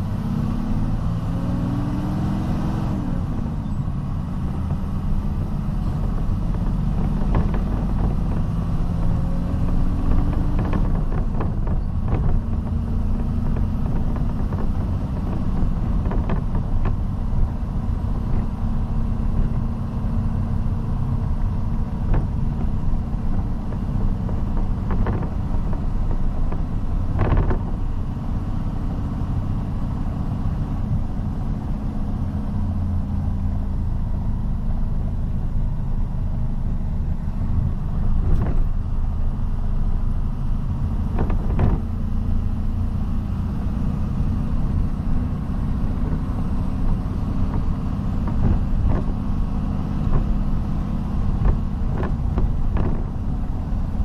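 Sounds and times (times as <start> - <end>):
low road rumble: 0.0 - 54.0
vehicle engine hum: 0.0 - 54.0
knocks and rattles: 22.0 - 27.8, 41.1 - 41.9, 51.4 - 53.2.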